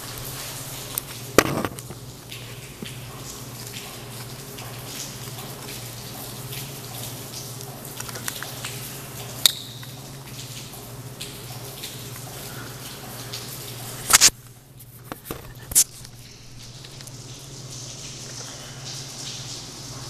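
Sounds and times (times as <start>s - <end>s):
small plastic clicks and rustles: 8.0s - 8.6s
sharp click: 14.1s - 14.3s.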